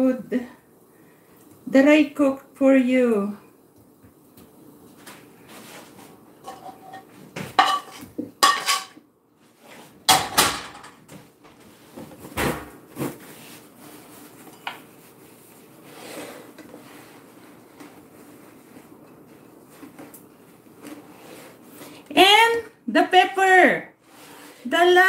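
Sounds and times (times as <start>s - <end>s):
fork scraping and clinking on pan: 6.4s - 9.0s.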